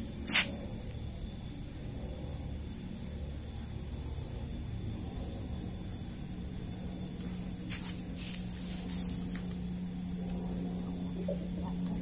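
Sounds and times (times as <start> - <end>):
low mechanical hum: 0.0 - 12.0
rustling and handling noises: 7.7 - 9.6.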